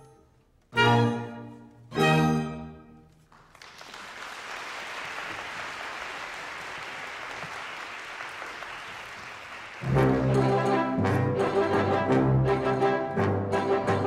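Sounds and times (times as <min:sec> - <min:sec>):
audience applauding: 0:03.2 - 0:10.4
orchestral chord: 0:09.8 - 0:14.0.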